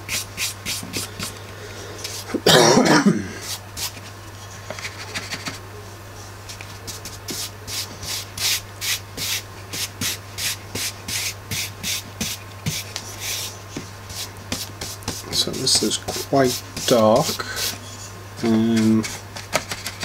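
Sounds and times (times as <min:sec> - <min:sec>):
low electrical hum: 0:00.0 - 0:20.0
paintbrush scrubbing on board: 0:00.1 - 0:01.3, 0:06.9 - 0:19.2.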